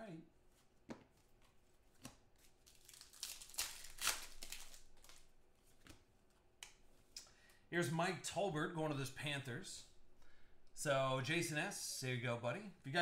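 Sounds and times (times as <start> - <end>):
card pack wrapper tearing and crinkling: 2.4 - 5.3.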